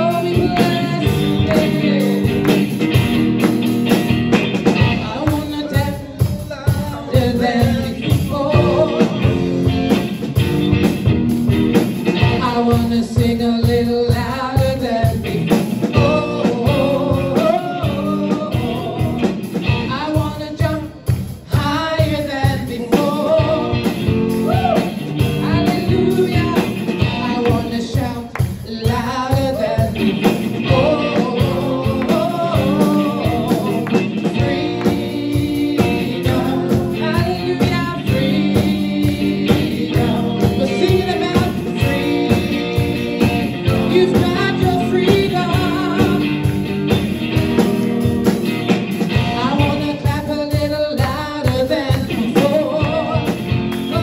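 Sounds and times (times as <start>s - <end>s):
woman singing: 0.0s - 2.6s, 4.9s - 9.5s, 12.4s - 23.9s, 25.4s - 46.3s, 49.2s - 54.0s
steady beat: 0.0s - 12.9s, 29.9s - 54.0s
electric guitar: 0.0s - 54.0s.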